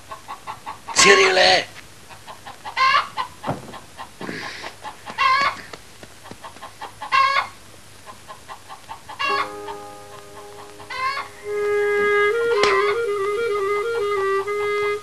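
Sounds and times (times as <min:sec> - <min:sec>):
chickens clucking: 0:00.0 - 0:01.3, 0:02.1 - 0:13.4
chickens squawking: 0:00.0 - 0:09.5, 0:10.1 - 0:13.4
music with held notes: 0:09.3 - 0:15.0.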